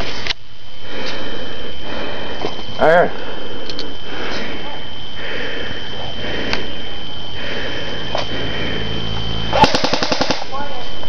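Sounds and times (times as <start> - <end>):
camera recording hiss and whine: 0.0 - 11.0.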